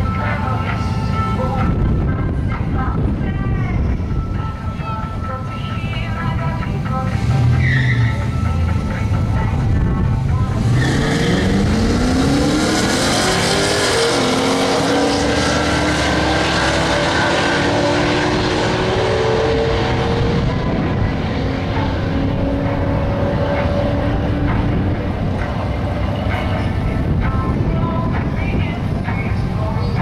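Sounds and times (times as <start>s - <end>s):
car engines revving hard: 7.0s - 27.3s.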